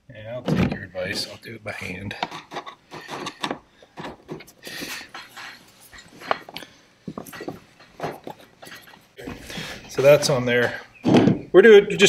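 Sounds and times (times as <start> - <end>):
hardware being handled: 0.5 - 11.5.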